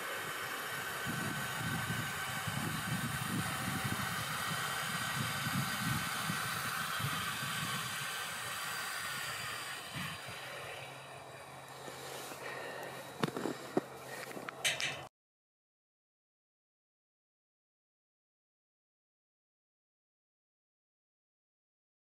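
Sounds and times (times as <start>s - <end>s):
faint motor whine: 0.0s - 15.1s
wind on microphone: 1.0s - 8.4s, 9.2s - 10.4s.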